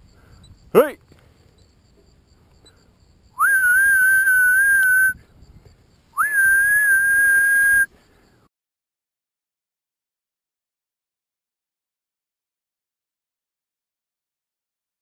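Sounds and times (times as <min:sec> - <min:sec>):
person whistling: 0:03.4 - 0:05.2, 0:06.2 - 0:07.9.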